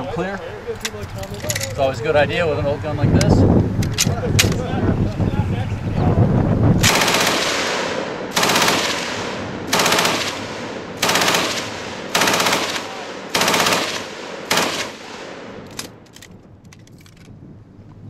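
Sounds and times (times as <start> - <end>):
machine gun bursts: 6.8 - 7.7, 8.3 - 16.2
gunfire echo: 6.8 - 16.0.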